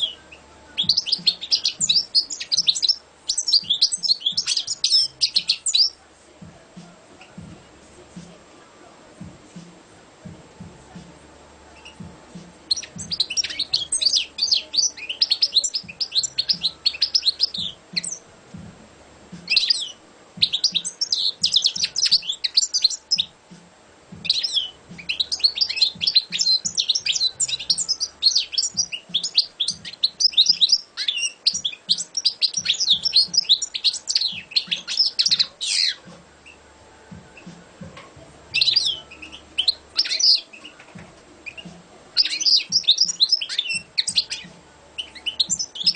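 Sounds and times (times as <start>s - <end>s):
goldfinch twittering song: 0.0s - 6.0s, 12.7s - 18.3s, 19.4s - 23.4s, 24.2s - 36.6s, 38.5s - 45.9s.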